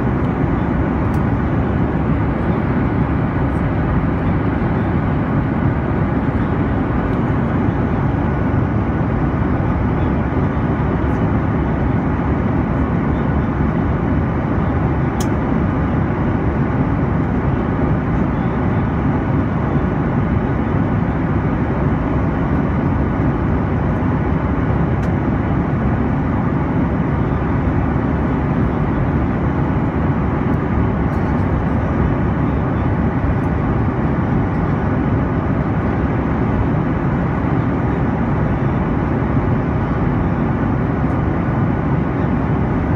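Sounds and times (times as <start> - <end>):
airliner cabin engine rush: 0.0 - 42.9.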